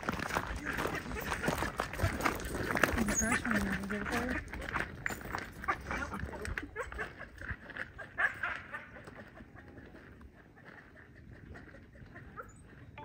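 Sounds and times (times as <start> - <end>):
animal calls: 5.6 - 13.0.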